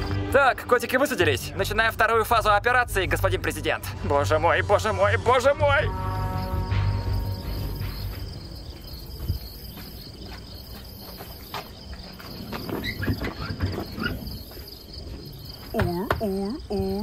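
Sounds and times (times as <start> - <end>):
crickets chirping: 0.0 - 17.0
people shuffling and clicking: 7.9 - 17.0.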